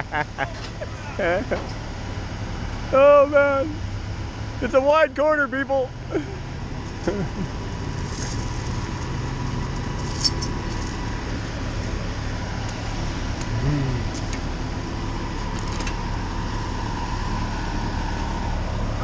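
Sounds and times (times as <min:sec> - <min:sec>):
diesel vehicles idling: 0:00.0 - 0:19.0
passing road traffic: 0:00.0 - 0:19.0.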